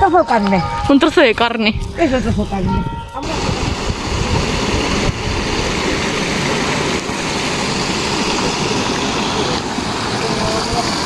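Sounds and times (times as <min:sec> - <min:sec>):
stream rushing over stones: 0:03.2 - 0:11.0.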